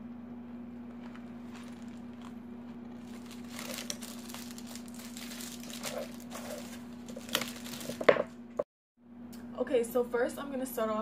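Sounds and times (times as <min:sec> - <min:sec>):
steady low hum: 0:00.0 - 0:11.0
packaging crinkling and rustling: 0:00.9 - 0:08.4.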